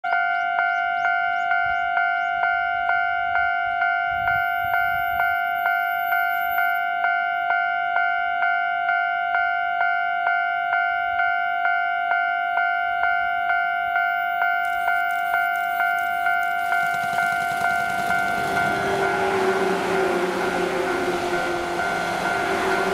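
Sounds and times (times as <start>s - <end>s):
level crossing electronic bell: 0.1s - 22.9s
electric train rushing: 14.0s - 22.9s.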